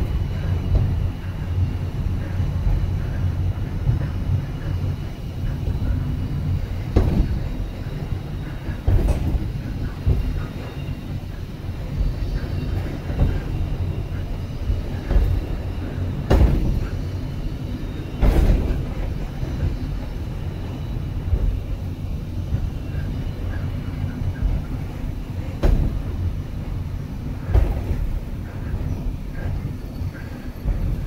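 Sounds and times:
cable car rumble: 0.0s - 31.0s
wheels knocking on track: 5.4s - 20.2s, 22.4s - 31.0s.

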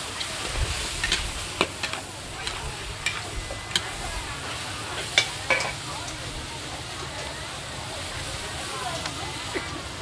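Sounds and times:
food sizzling in hot oil: 0.0s - 10.0s
metal spatulas scraping a wok: 0.3s - 5.8s.

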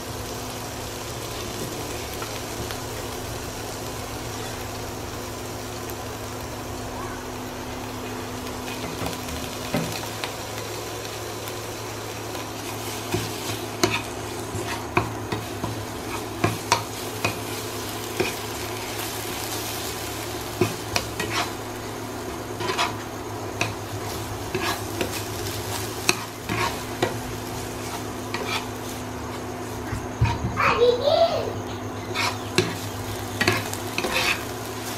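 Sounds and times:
spice paste sizzling in oil: 0.0s - 34.9s
steady low hum: 0.0s - 34.9s
metal spatula scraping a pan: 20.6s - 21.6s, 22.6s - 23.0s, 24.5s - 25.2s, 26.0s - 27.2s, 27.8s - 29.0s, 32.0s - 34.9s.

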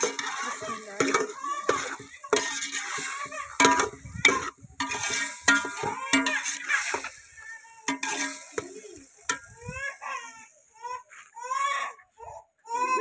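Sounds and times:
metal spoon scraping a pot: 0.0s - 9.8s.

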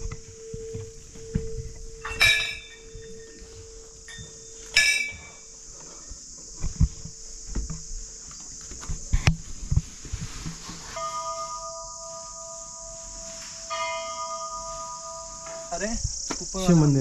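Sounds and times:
soft thumps: 0.0s - 5.3s
high drone of insects: 0.0s - 17.0s
temple bell ringing: 0.4s - 5.4s, 10.9s - 16.0s.

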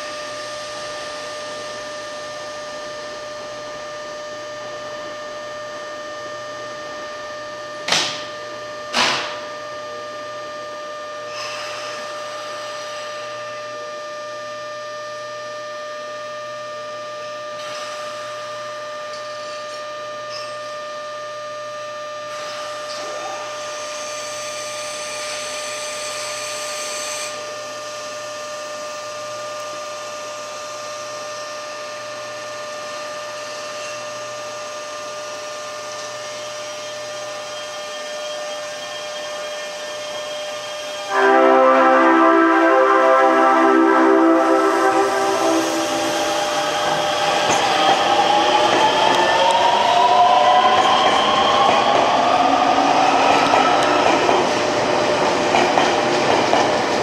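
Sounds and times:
train electrical hum and whine: 0.0s - 57.0s
hiss: 11.3s - 13.2s.

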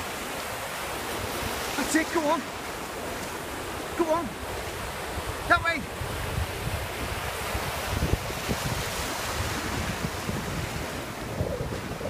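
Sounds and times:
surf washing over shallow water: 0.0s - 12.0s
wind buffeting microphone: 2.9s - 12.0s.

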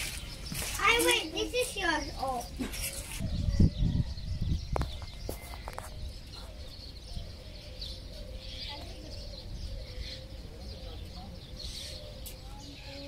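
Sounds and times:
wind rumble on microphone: 2.6s - 13.0s.

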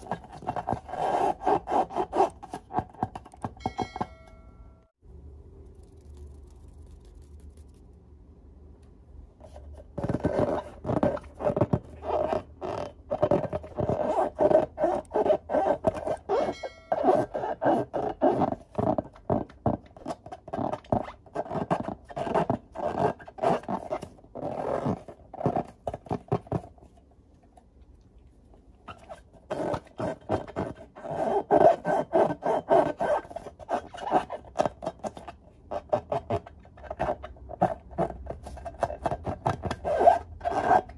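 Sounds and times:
rubber balloons squeaking: 10.0s - 26.3s, 28.9s - 40.9s.

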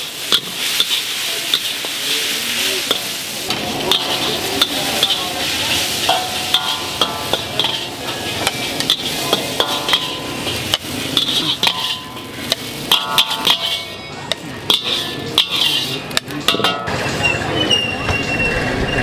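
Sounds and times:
noodles sizzling in a wok: 0.0s - 17.0s
metal spatula clinking on wok: 2.8s - 17.3s.

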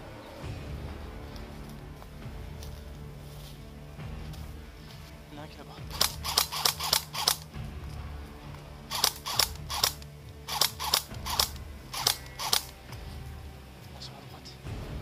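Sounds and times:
airsoft rifle shots: 5.9s - 7.5s, 8.9s - 12.8s.

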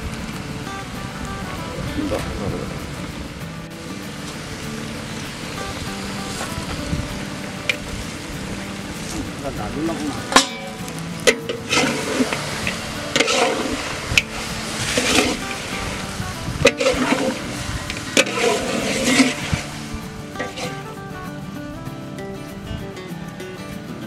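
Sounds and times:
curry sizzling: 0.0s - 24.0s
metal clanks on a pot: 10.2s - 19.7s, 20.4s - 20.8s
metal spatula scraping a pot: 11.3s - 15.7s, 16.6s - 19.7s, 20.4s - 20.8s.

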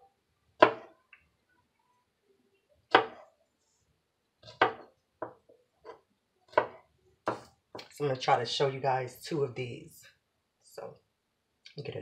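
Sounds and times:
knife chopping on counter: 0.6s - 0.9s, 2.9s - 3.3s, 4.4s - 5.4s, 6.5s - 7.5s.

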